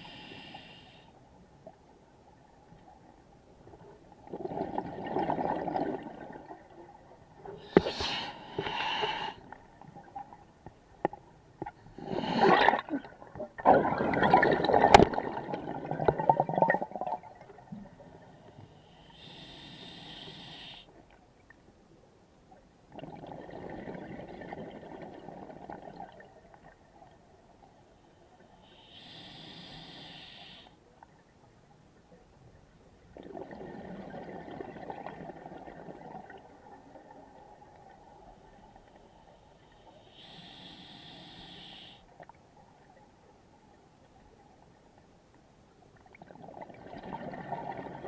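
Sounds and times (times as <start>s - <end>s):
regulator hiss on inhale: 0.0s - 1.2s, 7.6s - 9.6s, 18.4s - 21.0s, 28.0s - 30.8s, 38.8s - 42.2s
gurgle of exhaled bubbles: 4.2s - 6.8s, 12.0s - 17.8s, 22.9s - 26.4s, 33.2s - 37.9s, 46.1s - 48.0s.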